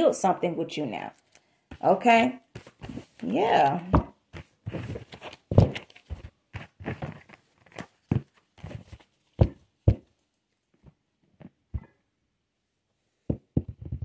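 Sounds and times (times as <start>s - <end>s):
sharp knocks: 9.4s - 10.1s
microphone handling noise: 13.3s - 14.0s.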